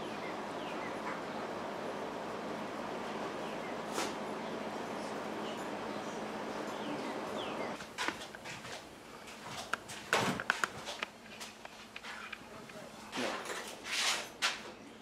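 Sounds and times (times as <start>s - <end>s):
faint bird chirping: 0.0s - 1.6s, 3.4s - 7.8s.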